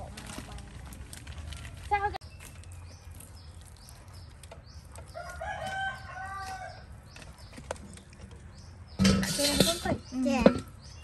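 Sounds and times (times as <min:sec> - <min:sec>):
rooster crowing: 0:05.1 - 0:06.8.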